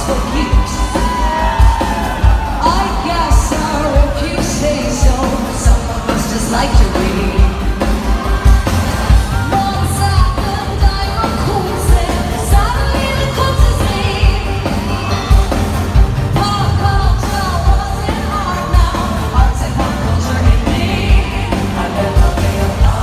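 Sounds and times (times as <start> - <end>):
woman singing into a microphone: 2.6 - 7.6, 9.5 - 14.7, 16.4 - 23.0.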